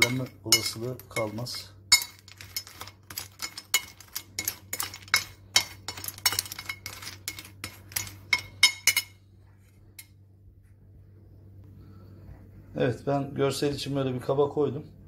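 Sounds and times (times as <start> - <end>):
spoon clinking candies on a plate: 0.0 - 9.2.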